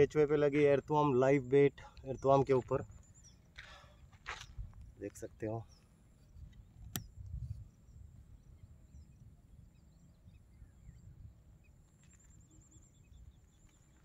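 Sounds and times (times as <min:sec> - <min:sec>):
faint bird chirps: 0:01.6 - 0:14.0
wind rumble on microphone: 0:04.2 - 0:11.8
high insect whine: 0:07.4 - 0:14.0.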